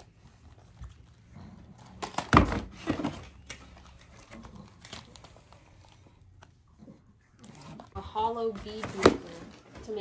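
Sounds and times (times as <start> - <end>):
cardboard boxes knocking and rustling: 2.0 - 3.5.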